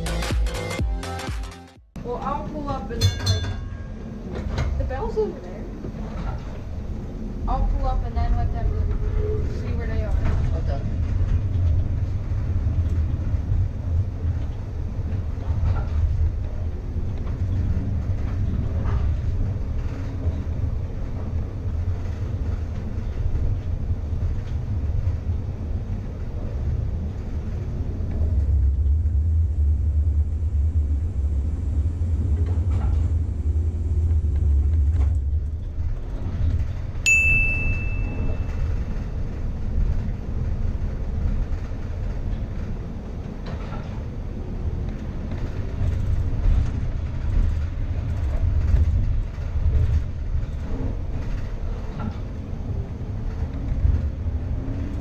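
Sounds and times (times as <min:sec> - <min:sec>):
streetcar rumbling on rails: 0:02.0 - 0:55.0
bell strike: 0:03.0 - 0:04.1, 0:37.1 - 0:38.6.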